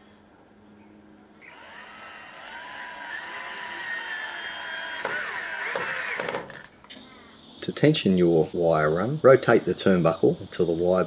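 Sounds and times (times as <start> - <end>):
cordless drill whining: 1.4 - 6.7.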